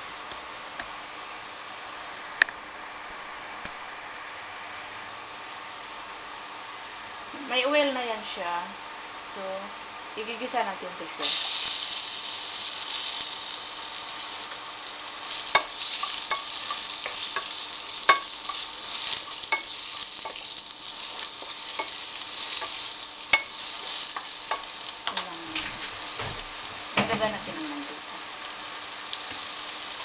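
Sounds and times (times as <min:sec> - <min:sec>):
carrots sizzling in oil: 0:10.6 - 0:30.0
spatula scraping a pan: 0:15.3 - 0:24.7.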